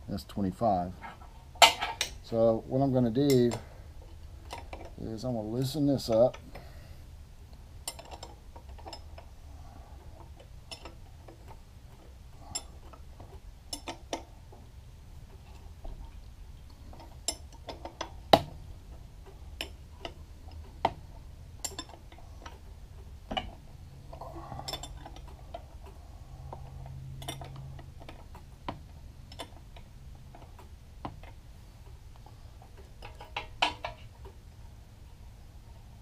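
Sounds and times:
metal clicks of wrench and nuts: 3.2 - 5.0, 7.8 - 9.3, 10.2 - 14.3, 16.8 - 21.0, 21.6 - 23.6, 24.4 - 31.4, 32.2 - 34.4.

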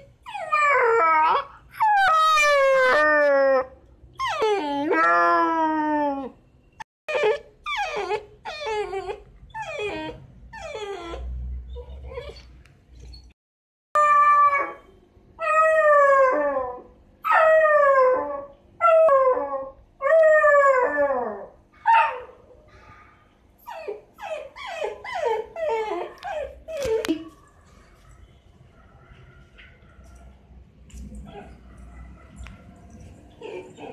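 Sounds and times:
puppy whimpers and yips: 0.0 - 3.6, 4.2 - 6.3, 7.1 - 13.4, 23.6 - 27.2, 33.4 - 33.9
puppy whining howls: 0.2 - 6.4, 7.1 - 12.4, 14.0 - 22.3, 23.6 - 27.1.

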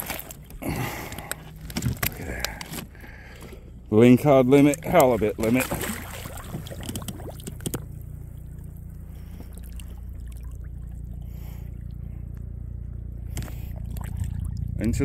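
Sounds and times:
water splashing and trickling: 0.0 - 2.5, 3.1 - 12.1, 13.5 - 15.0
low steady rumble: 0.0 - 15.0.

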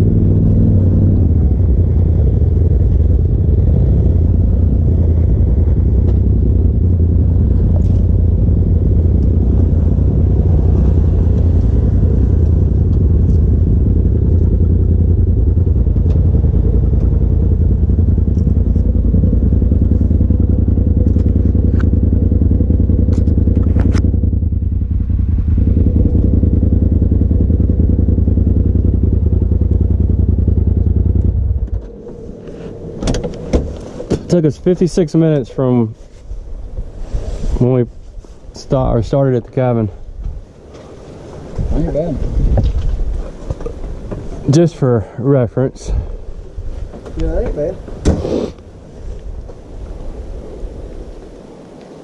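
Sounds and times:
engine idling: 0.0 - 35.8.

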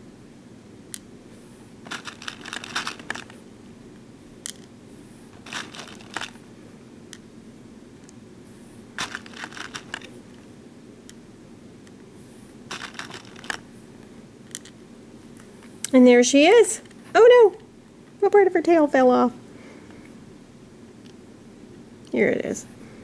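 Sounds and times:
faint steady hum: 0.0 - 23.0
plastic beads clicking: 1.9 - 3.3, 9.0 - 10.1, 12.7 - 13.6.

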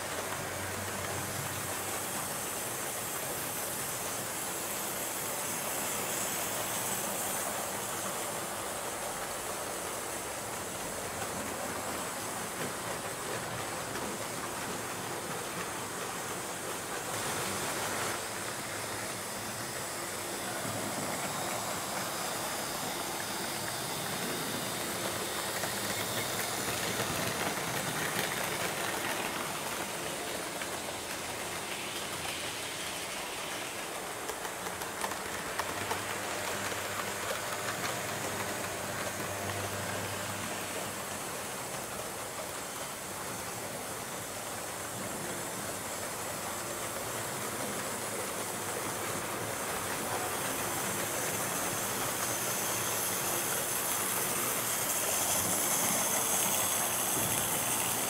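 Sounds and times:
model trains whirring and rattling: 0.0 - 58.0.

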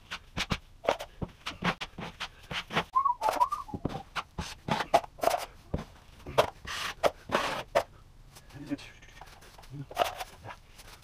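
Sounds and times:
drywall knife scraping compound: 0.1 - 7.9.

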